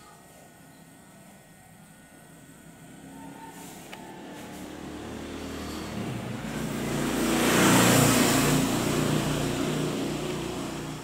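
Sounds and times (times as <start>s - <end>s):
vehicle passing by: 3.6s - 11.0s.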